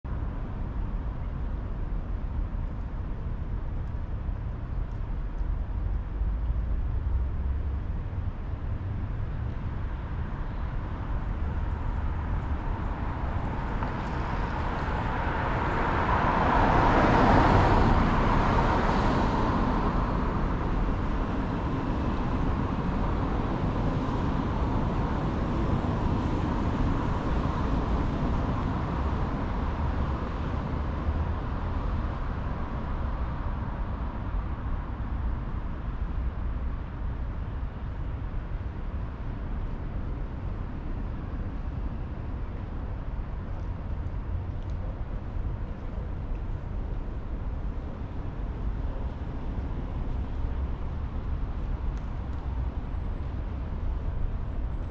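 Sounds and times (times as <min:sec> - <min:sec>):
street traffic rumble: 0:00.1 - 0:54.9.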